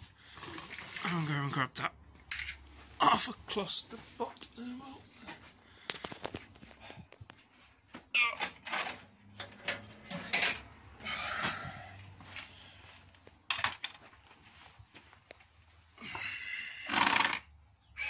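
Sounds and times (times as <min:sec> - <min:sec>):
plastic and metal parts rattling: 0:00.4 - 0:01.3, 0:08.4 - 0:10.7, 0:13.5 - 0:14.1.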